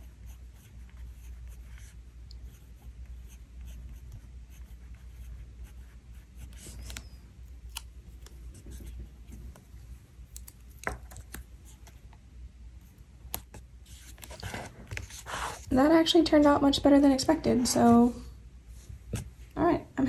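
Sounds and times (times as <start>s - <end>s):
pen scratching on paper: 0.0s - 7.1s, 8.1s - 9.1s, 13.9s - 15.7s.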